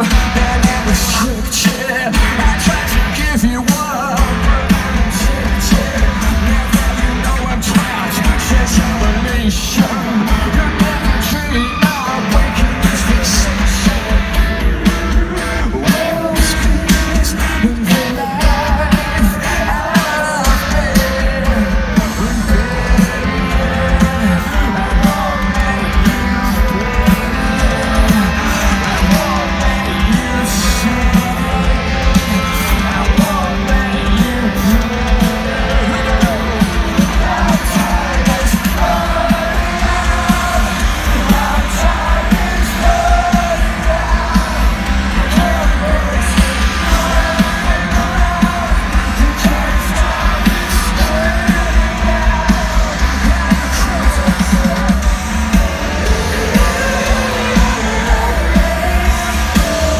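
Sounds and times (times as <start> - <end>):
live rock band: 0.0 - 59.9
sung lead vocals: 0.0 - 59.9.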